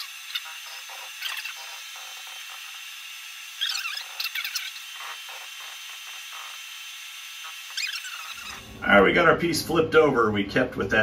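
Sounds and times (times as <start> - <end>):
short scratchy machine sounds: 3.5 - 6.6, 7.4 - 9.0.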